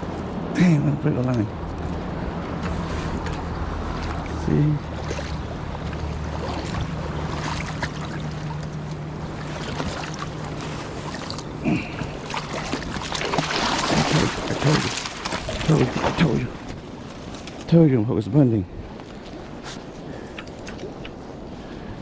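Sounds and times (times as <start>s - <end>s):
steady low hum: 0.0s - 22.0s
river water rushing over gravel: 2.4s - 16.7s
fish splashing and scraping on stones: 9.8s - 16.4s.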